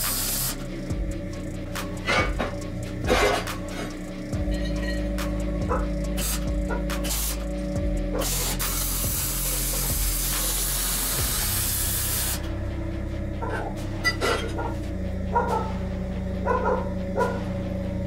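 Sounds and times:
welding arc frying hiss: 0.0s - 4.4s, 5.2s - 12.5s
background music with held notes: 0.0s - 18.0s.

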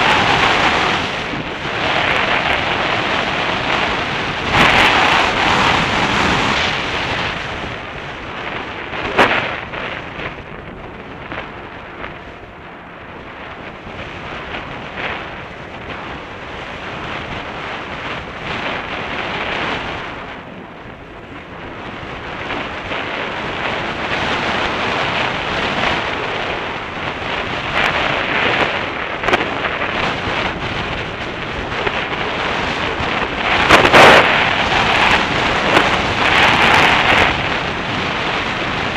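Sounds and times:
wind on microphone: 0.0s - 38.9s.

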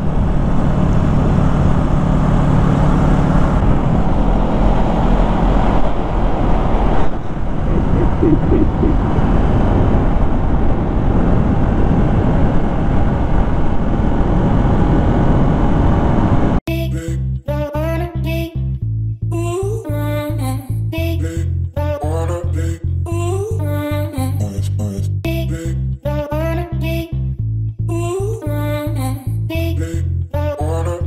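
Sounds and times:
road noise: 0.0s - 16.6s
rushing wind noise: 0.0s - 16.6s.

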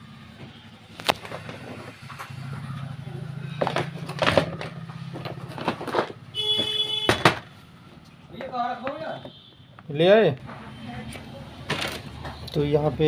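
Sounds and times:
handling clicks and knocks: 3.6s - 7.5s.

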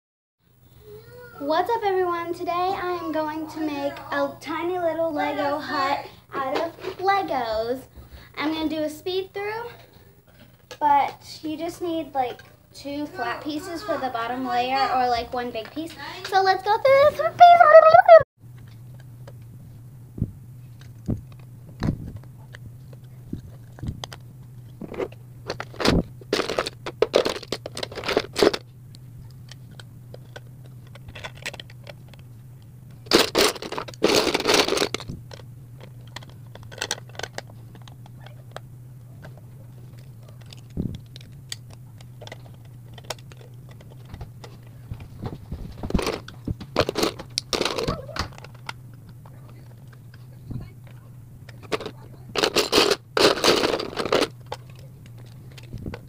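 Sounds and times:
steady low hum: 0.5s - 56.0s
plastic bricks clicking and clattering: 24.9s - 28.6s, 29.5s - 32.2s, 33.1s - 38.6s, 45.8s - 50.1s, 51.5s - 56.0s.

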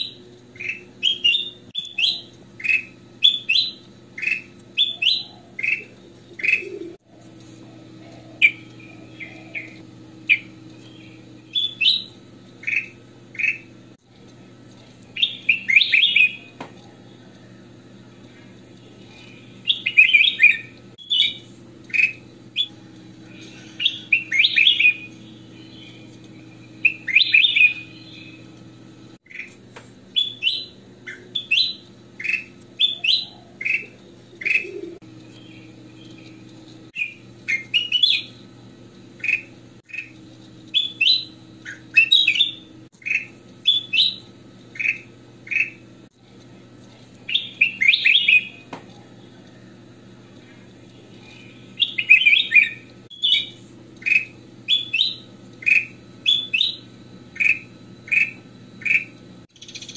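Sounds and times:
bird singing whistled notes: 0.0s - 6.8s, 8.4s - 13.7s, 15.2s - 16.5s, 19.2s - 22.8s, 23.8s - 28.5s, 30.2s - 36.1s, 37.0s - 38.4s, 40.7s - 45.8s, 47.3s - 48.7s, 51.2s - 59.9s.

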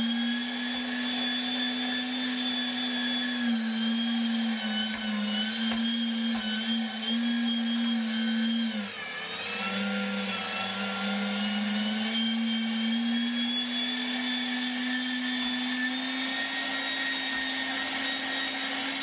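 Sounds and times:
electric meat grinder motor hum: 0.0s - 19.0s.

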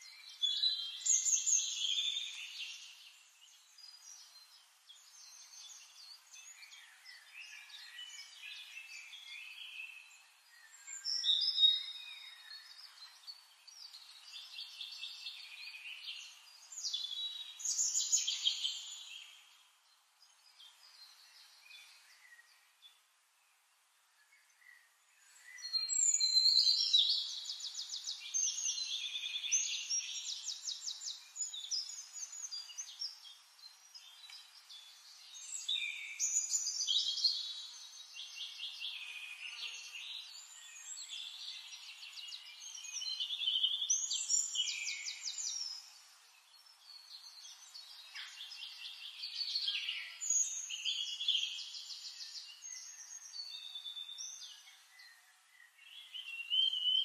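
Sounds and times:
songbirds trilling: 24.6s - 57.0s.

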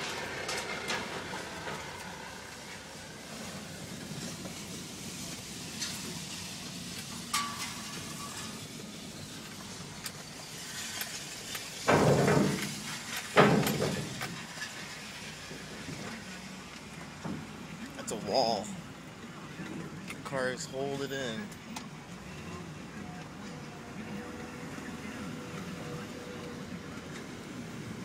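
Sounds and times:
truck engine and road noise: 0.0s - 28.0s
metallic clanks: 7.0s - 8.8s, 10.0s - 15.0s.

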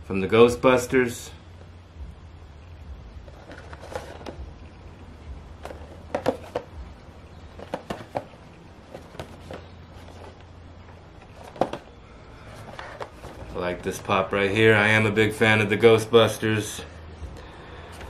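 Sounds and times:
low steady hum: 0.0s - 18.0s
cardboard box handled: 3.3s - 4.4s, 5.6s - 10.5s, 11.2s - 13.6s.

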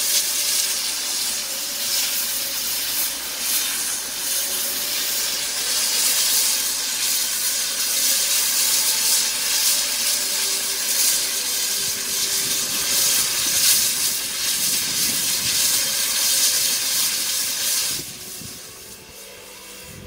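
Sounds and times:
steam locomotive hissing steam: 0.0s - 20.0s.

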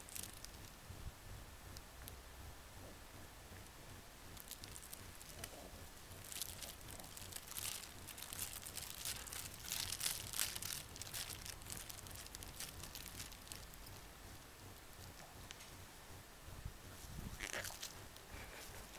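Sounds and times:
paper rustling and crinkling: 4.4s - 14.0s, 17.0s - 18.9s.

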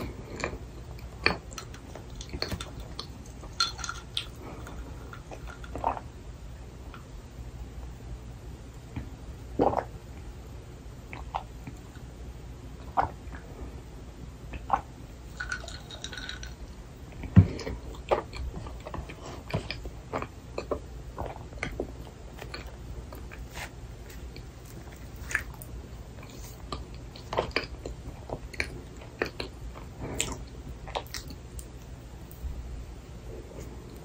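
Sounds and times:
chewing and biting: 22.4s - 31.4s.

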